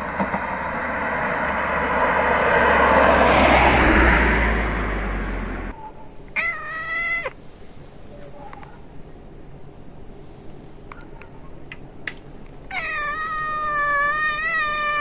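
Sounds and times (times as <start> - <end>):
car passing by: 0.0 - 5.8.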